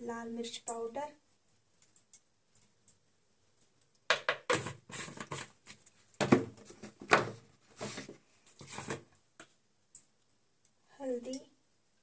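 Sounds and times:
spice container knocking and rustling: 0:04.1 - 0:05.5, 0:06.2 - 0:09.0.

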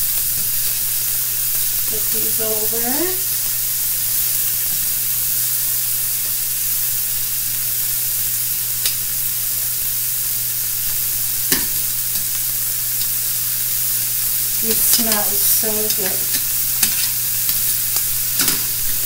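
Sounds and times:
shrimp sizzling in a skillet: 0:00.0 - 0:19.0
metal tongs clicking on pan: 0:11.5 - 0:12.4, 0:14.7 - 0:18.8.

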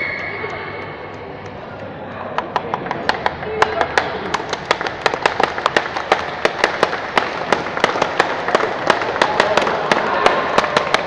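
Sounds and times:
small crowd applauding: 0:03.8 - 0:11.0.

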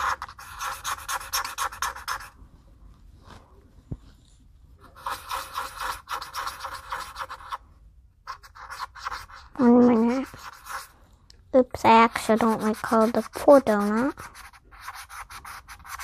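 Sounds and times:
marker scribbling on paper: 0:00.0 - 0:02.4, 0:04.8 - 0:07.6, 0:08.2 - 0:11.0, 0:11.8 - 0:16.0.

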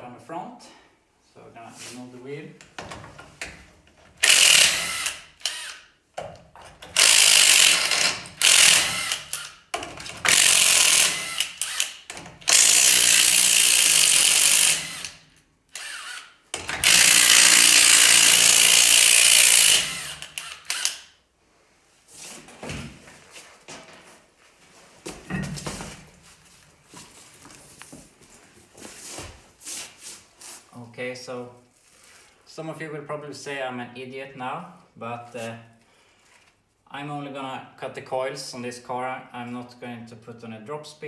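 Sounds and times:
impact wrench hammering: 0:04.2 - 0:15.2, 0:15.8 - 0:21.1.

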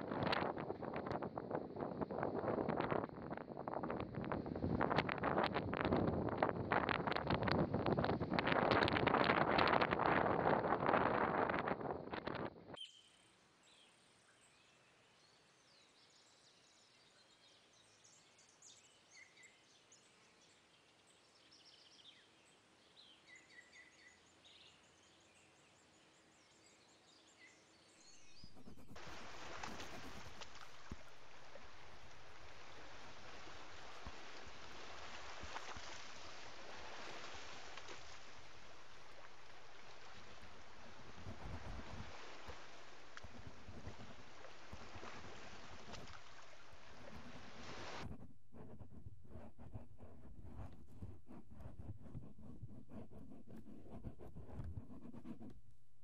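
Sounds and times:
wind on microphone: 0:00.0 - 0:12.8, 0:28.3 - 0:55.5.

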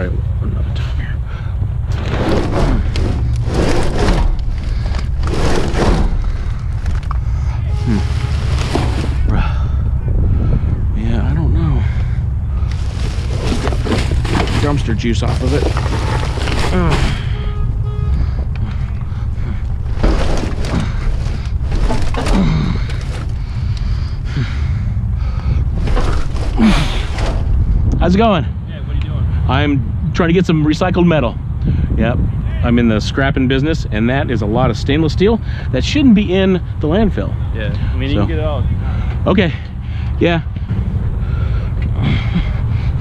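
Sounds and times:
wind rumble on microphone: 0:00.0 - 0:35.4, 0:40.4 - 0:43.0
metal knocks and scrapes: 0:01.9 - 0:09.4, 0:12.6 - 0:23.6, 0:25.4 - 0:27.9
plastic garbage bags rustling: 0:07.7 - 0:09.3, 0:12.6 - 0:17.4, 0:19.8 - 0:23.4.

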